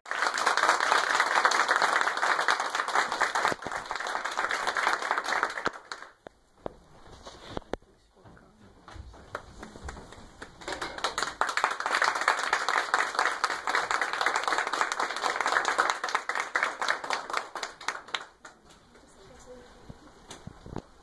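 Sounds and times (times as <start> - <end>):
audience clapping: 0.0 - 6.3, 9.1 - 18.6.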